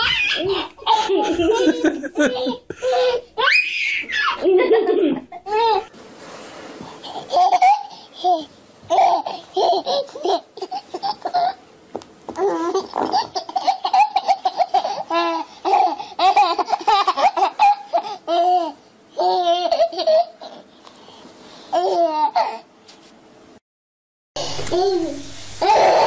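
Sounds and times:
baby laughing: 0.0s - 5.9s, 7.0s - 11.6s, 12.4s - 20.6s, 21.7s - 22.7s.

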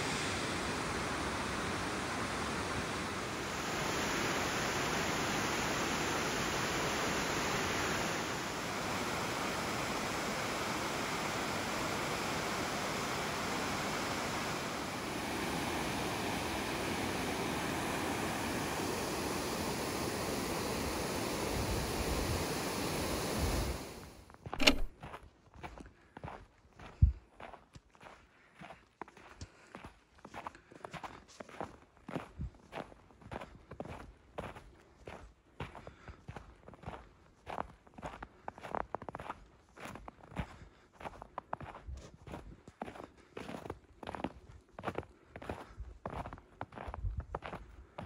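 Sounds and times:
waterfall roaring: 0.0s - 24.0s.

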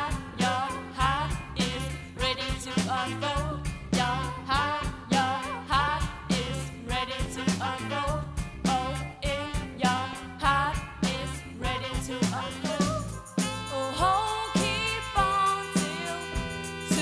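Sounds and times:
drum kit beat: 0.0s - 17.0s
low bass notes: 0.0s - 17.0s
people singing: 13.7s - 17.0s.

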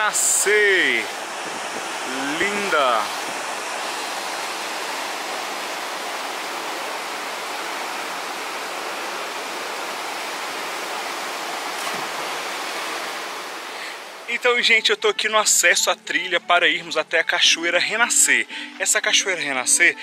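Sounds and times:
waterfall rushing: 0.0s - 14.4s.

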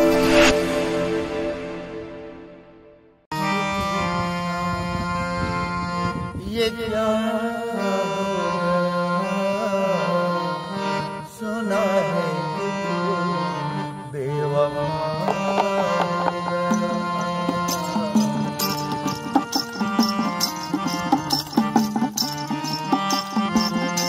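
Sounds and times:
man singing: 6.3s - 24.0s
hand drum: 15.2s - 24.0s
keyed zither: 16.7s - 24.0s.

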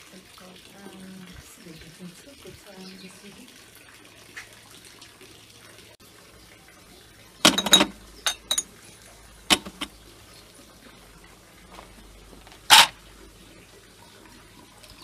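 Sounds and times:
glasses and dishes clinking: 7.5s - 8.7s.

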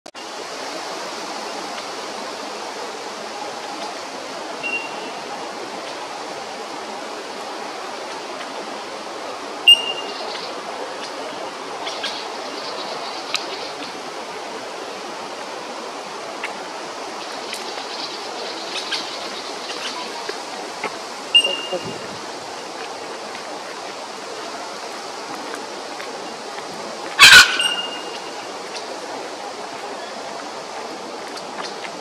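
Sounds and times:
brief high calls: 27.2s - 28.4s.

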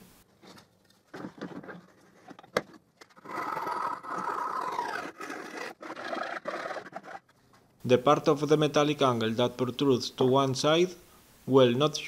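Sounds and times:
tool rasping through plywood: 3.2s - 7.3s.

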